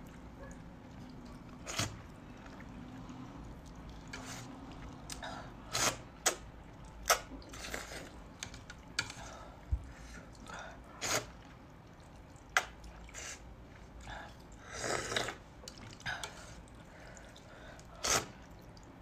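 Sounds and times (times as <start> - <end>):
soft chewing: 0.0 - 5.2, 6.6 - 19.0
wet noodle slurps: 1.0 - 8.2, 10.0 - 11.6, 12.5 - 18.6.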